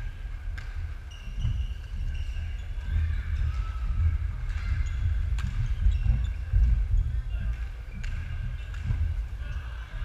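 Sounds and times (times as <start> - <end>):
shoes squeaking on wooden floor: 1.0 - 7.2
steady low rumble: 2.0 - 10.0.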